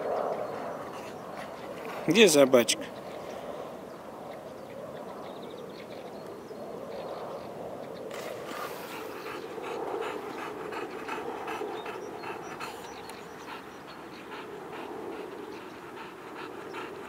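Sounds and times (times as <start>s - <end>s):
dog panting hard: 0.0s - 3.0s, 8.2s - 17.0s.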